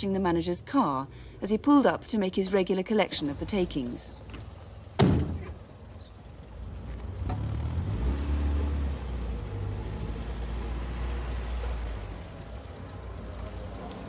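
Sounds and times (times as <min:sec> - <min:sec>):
van engine rumbling: 0:00.0 - 0:14.0.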